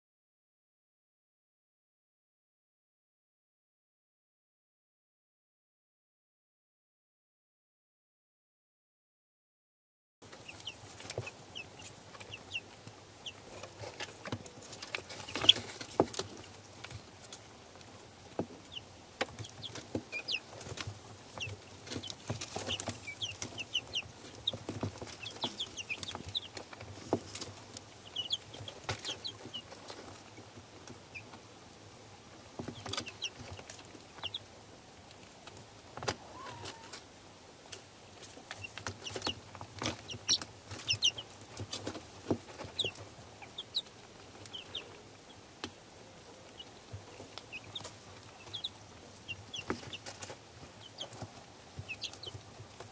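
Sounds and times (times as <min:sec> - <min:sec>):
beaks pecking at feed: 0:10.2 - 0:37.1, 0:37.7 - 0:52.9
chicks peeping: 0:10.2 - 0:52.9.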